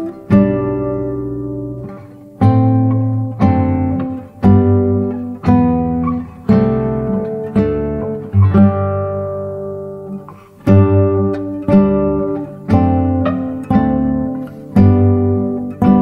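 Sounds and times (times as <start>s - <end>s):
acoustic guitar strumming chords: 0.0s - 16.0s.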